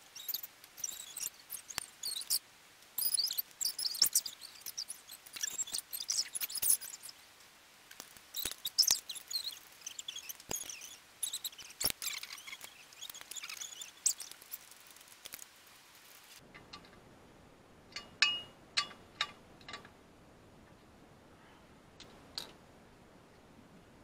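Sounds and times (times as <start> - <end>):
faint high chirping: 0.0 - 2.4, 3.0 - 7.2, 8.2 - 16.4.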